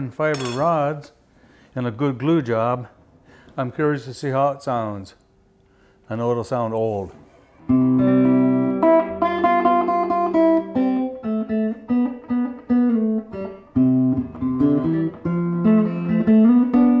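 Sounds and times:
guitar picking single notes and chords: 7.6 - 17.0.

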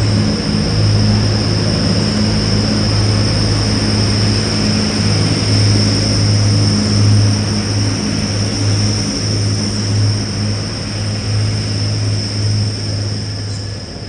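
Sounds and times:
steady high whine: 0.0 - 14.0
train diesel engines droning: 0.0 - 14.0.

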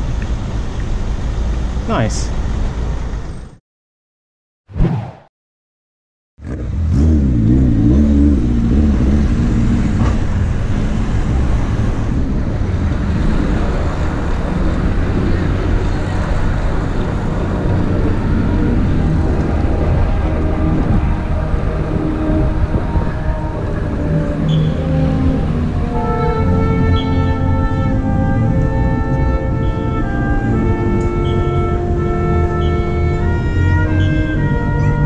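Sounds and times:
road traffic: 0.0 - 3.6, 6.4 - 35.0
wind rumble on microphone: 8.4 - 26.4.

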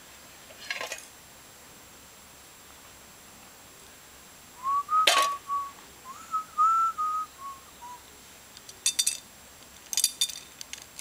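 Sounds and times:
person whistling a tune: 4.6 - 8.0.

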